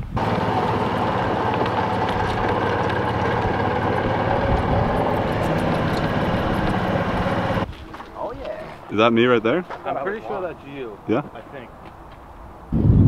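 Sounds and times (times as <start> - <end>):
golf cart motor drone: 0.0 - 7.6
road noise: 0.0 - 12.8.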